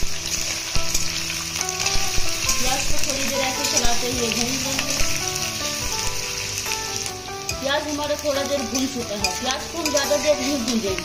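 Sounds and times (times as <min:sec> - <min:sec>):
onions sizzling in oil: 0:00.0 - 0:11.0
spatula scraping a pan: 0:07.5 - 0:10.9.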